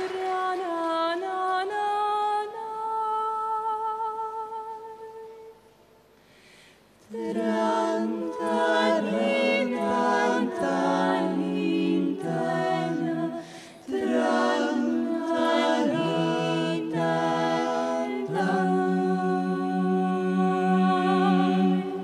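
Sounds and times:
women singing a cappella harmony: 0.0s - 5.6s, 7.1s - 22.0s.

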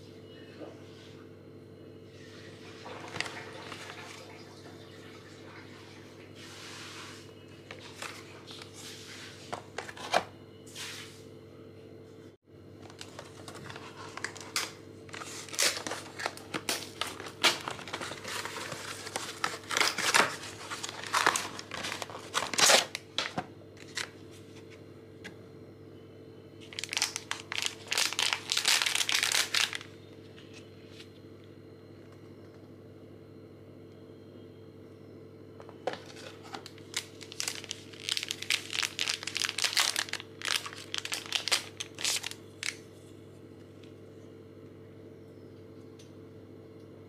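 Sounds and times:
plastic packet crinkling: 12.8s - 24.2s, 26.6s - 30.5s, 35.8s - 42.8s.

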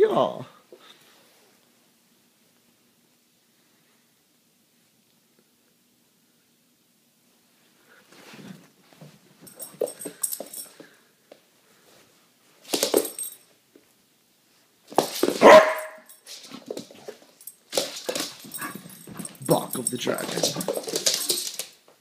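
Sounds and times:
light scuffling: 7.9s - 13.5s, 14.8s - 22.0s
dog barking: 15.4s - 16.1s.

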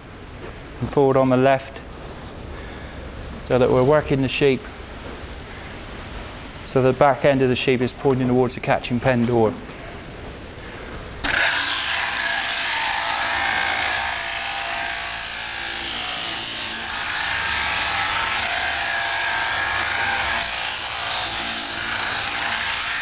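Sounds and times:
sheep-shearing handpiece buzzing: 11.2s - 23.0s.

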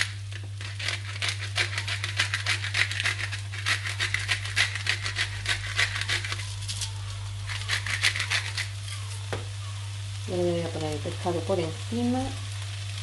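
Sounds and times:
pepper grinder grinding: 0.0s - 9.3s.

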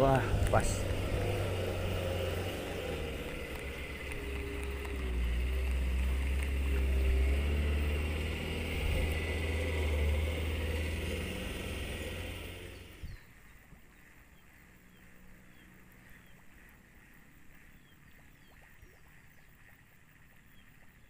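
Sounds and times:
dump truck engine rumbling: 0.0s - 13.2s.

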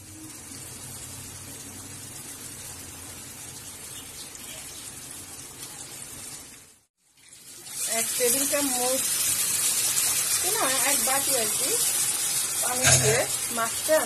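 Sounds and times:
paste sizzling in a wok: 7.0s - 14.0s.

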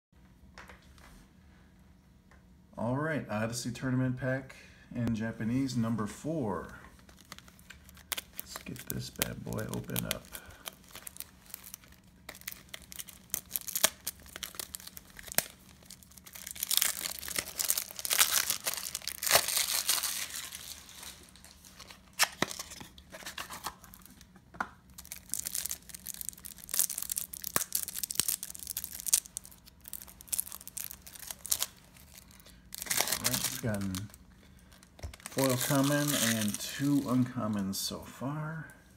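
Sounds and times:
plastic wrapping tearing and crinkling: 7.0s - 37.6s.

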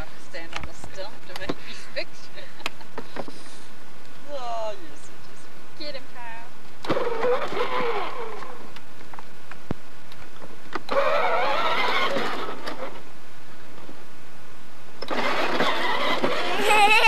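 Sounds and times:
toy truck electric motor whirring: 6.9s - 8.6s, 10.9s - 13.0s, 15.0s - 17.0s.

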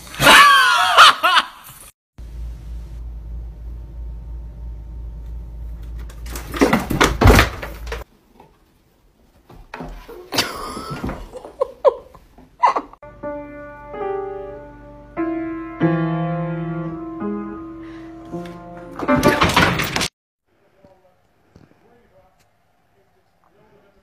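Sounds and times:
knocks and thumps: 6.0s - 8.5s, 19.0s - 20.1s
piano notes: 13.0s - 20.1s.

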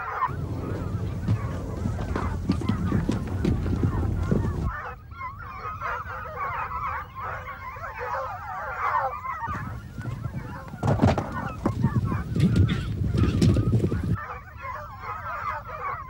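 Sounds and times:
foxhounds baying: 0.0s - 16.0s
heavy low rumble and knocks: 0.3s - 4.7s.

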